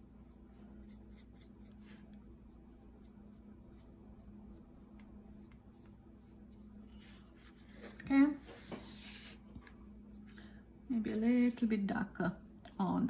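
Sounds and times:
paintbrush strokes on paper: 0.0 - 7.9
low steady hum: 0.0 - 13.0.

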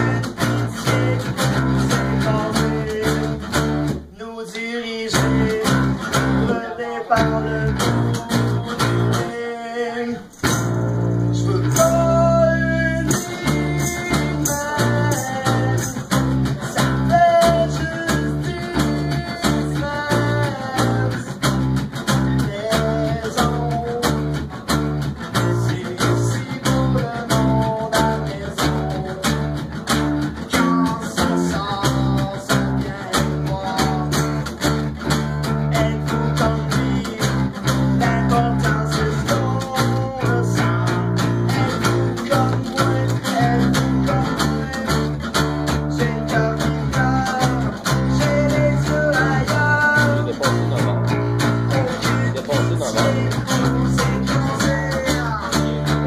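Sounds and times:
acoustic guitars strumming: 0.0 - 56.0
man singing: 0.0 - 56.0.

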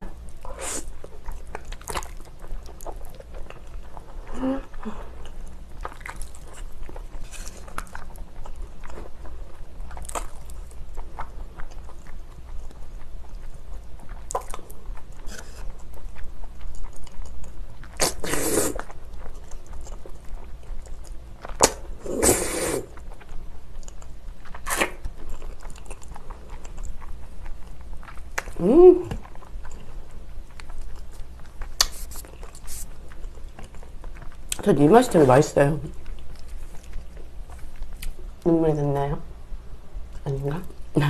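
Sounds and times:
wet chewing: 0.2 - 35.3, 35.9 - 38.4
noodle slurps: 18.0 - 18.9, 22.0 - 22.9.

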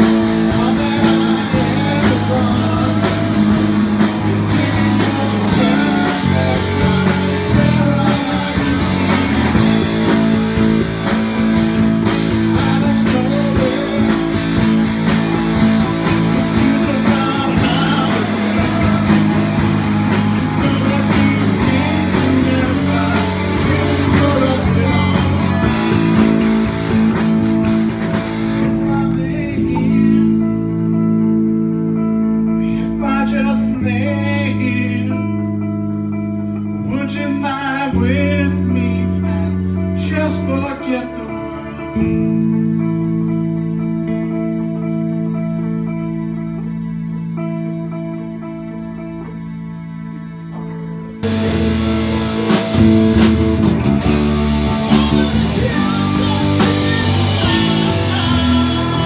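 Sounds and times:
man singing into microphone: 0.0 - 11.2, 12.0 - 26.7, 28.5 - 30.9, 32.6 - 35.6, 36.8 - 42.3, 54.2 - 59.0
steady drum beat: 0.0 - 29.1, 51.2 - 59.0
electric bass: 0.0 - 59.0
electric guitars: 0.0 - 59.0.

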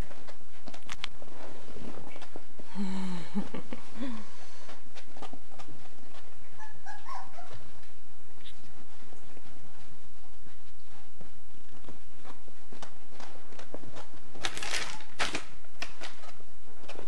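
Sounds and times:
paws scuffing on fabric: 0.0 - 2.7, 3.8 - 14.4
puppy whimpering: 6.4 - 7.8.

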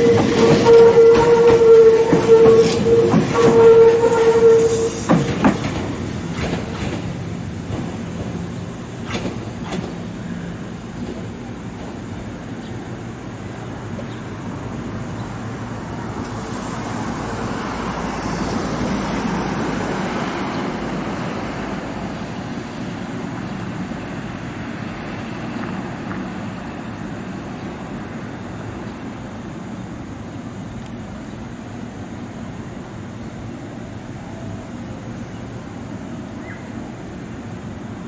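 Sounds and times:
electric train slowing to a stop: 0.0 - 38.0
train wheel clicks over rail joints: 4.4 - 10.1.

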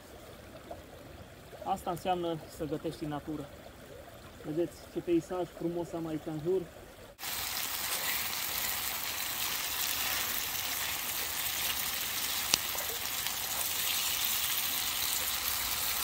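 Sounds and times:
food sizzling in a pan: 7.2 - 16.0.

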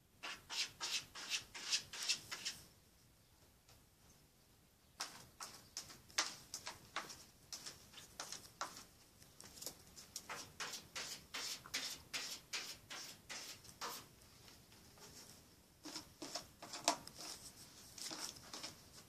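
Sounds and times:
cat scratching in litter: 0.2 - 2.6, 9.6 - 14.1, 15.8 - 19.0.

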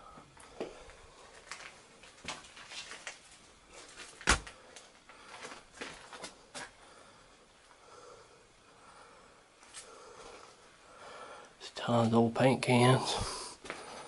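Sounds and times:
footsteps: 0.1 - 6.8, 13.1 - 14.0.

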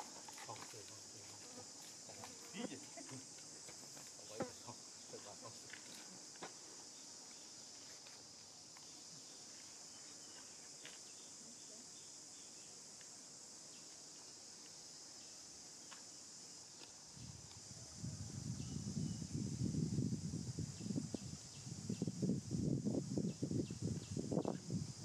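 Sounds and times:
insects chirring: 0.0 - 25.0.

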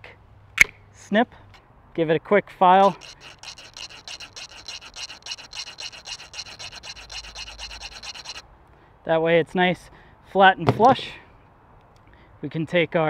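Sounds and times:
file scraping cable housing: 2.8 - 8.4.

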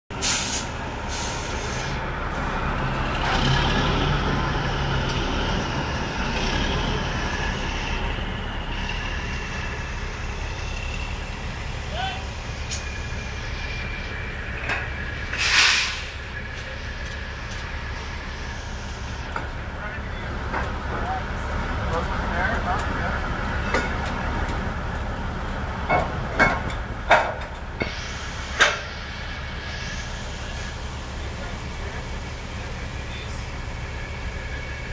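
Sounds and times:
diesel truck engine running: 0.1 - 34.9
short air hiss: 0.2 - 2.0, 15.4 - 16.2
metal clanks and knocks: 14.6 - 15.0, 25.8 - 27.7.

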